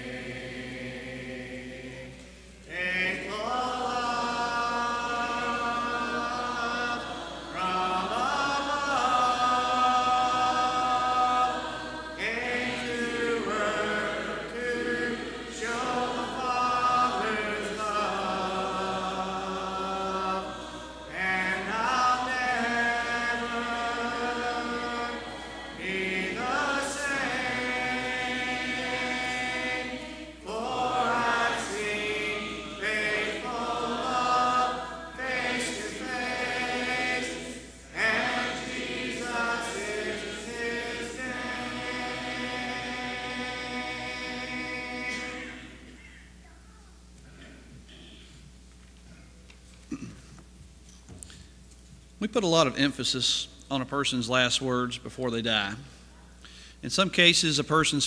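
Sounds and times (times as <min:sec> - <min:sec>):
congregation singing a hymn: 0:00.0 - 0:46.4.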